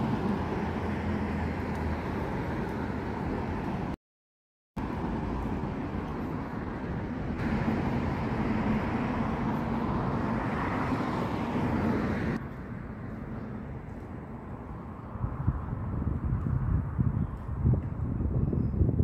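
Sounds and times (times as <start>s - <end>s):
street traffic rumble: 0.0s - 4.0s, 4.8s - 19.0s
engine hum: 4.8s - 16.8s.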